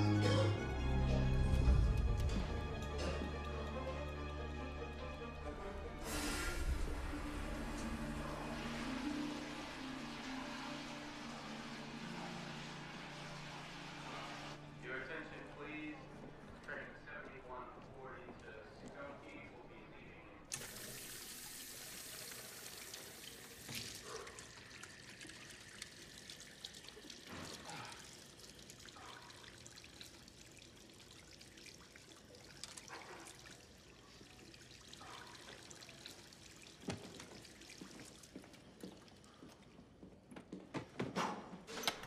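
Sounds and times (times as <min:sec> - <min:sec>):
tap water running into sink: 0:20.5 - 0:32.8, 0:33.6 - 0:39.1.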